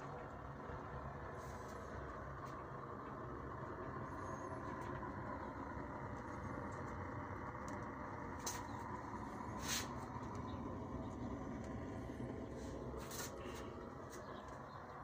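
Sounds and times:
pellet burner rushing: 0:00.0 - 0:15.0.

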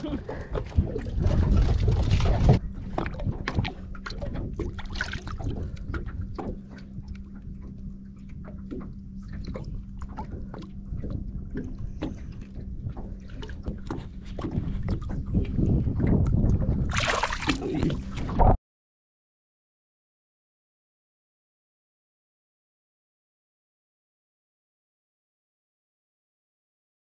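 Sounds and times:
steady low hum: 0:00.0 - 0:18.6
water splashing and sloshing: 0:00.0 - 0:18.6.

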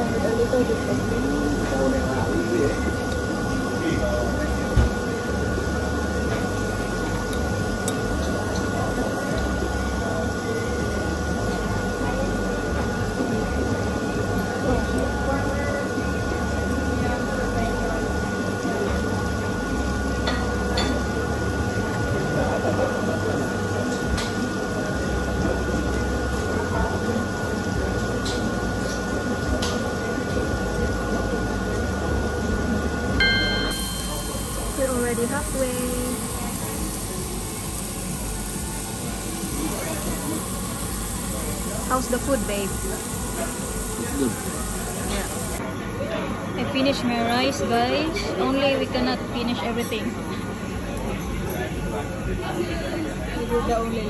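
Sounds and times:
thin steady whine: 0:00.0 - 0:45.8
restaurant hiss and rumble: 0:00.0 - 0:54.0
thin high whine: 0:33.2 - 0:45.6.

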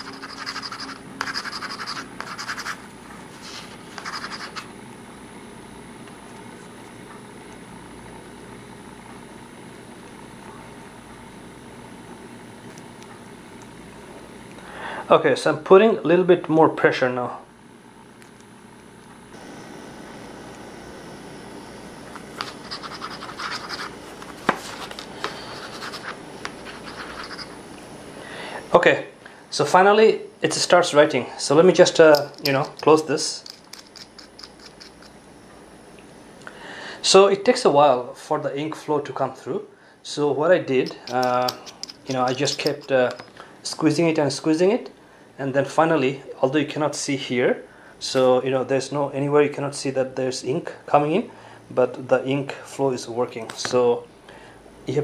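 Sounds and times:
pen nib scratching paper: 0:00.0 - 0:04.7, 0:22.4 - 0:24.0, 0:24.7 - 0:27.6.

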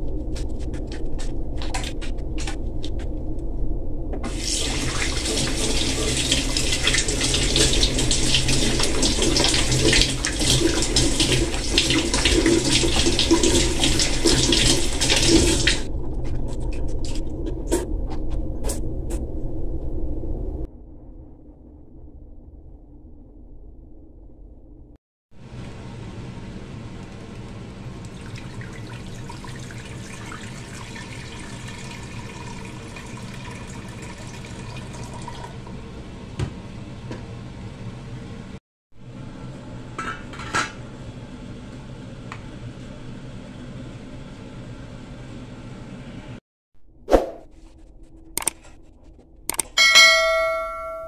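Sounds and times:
steady low hum: 0:00.0 - 0:06.8
faucet water running: 0:04.3 - 0:15.9, 0:25.4 - 0:35.8.

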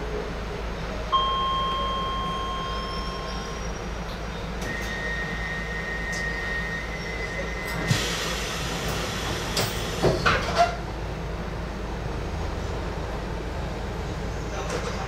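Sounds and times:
train cab low hum: 0:00.0 - 0:15.0
thin high tone: 0:01.1 - 0:03.8
air hiss: 0:07.9 - 0:10.1.

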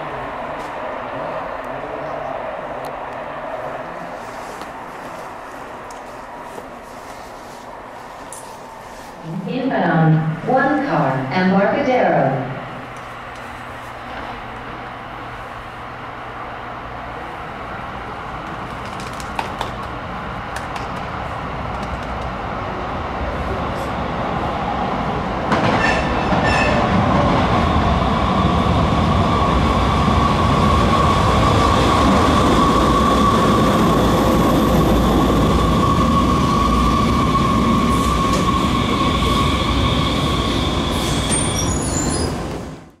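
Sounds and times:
light rail train high-pitched whine: 0:00.0 - 0:43.0.

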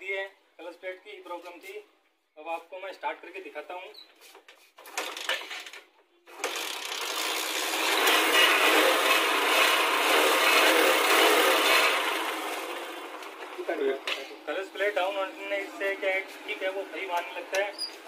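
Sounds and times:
motorcycle engine revving: 0:06.4 - 0:14.0.

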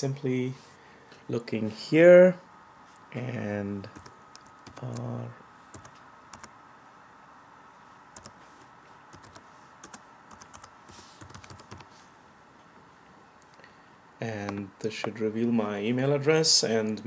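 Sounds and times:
computer keyboard typing: 0:03.9 - 0:05.1, 0:05.7 - 0:06.5, 0:08.2 - 0:08.4, 0:09.1 - 0:11.9.

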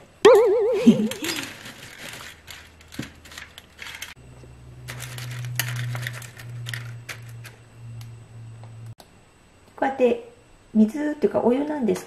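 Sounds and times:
steady low hum: 0:00.0 - 0:12.0
plastic bag crinkling: 0:00.8 - 0:04.2, 0:04.8 - 0:07.6
dry noodles crackling: 0:01.1 - 0:07.5.

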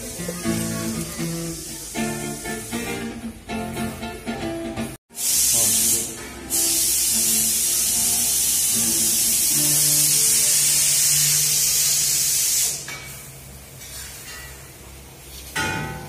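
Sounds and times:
loud steady hiss: 0:00.0 - 0:04.1, 0:05.1 - 0:13.7.

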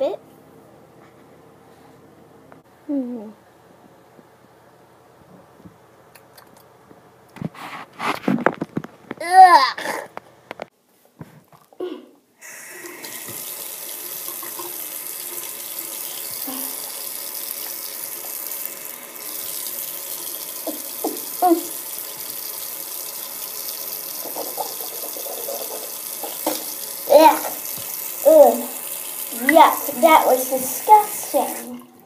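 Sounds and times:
faucet turned on: 0:12.4 - 0:32.0
water running into basin: 0:12.4 - 0:32.0.

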